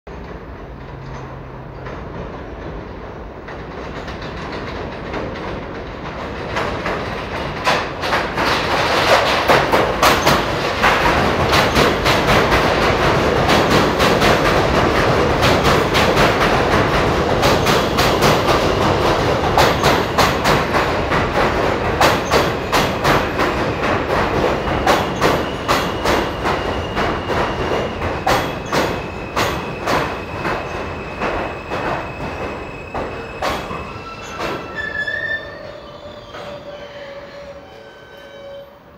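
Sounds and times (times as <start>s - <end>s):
train wheels clicking over rail joints: 0.1s - 35.3s
high wheel squeal: 24.5s - 38.9s.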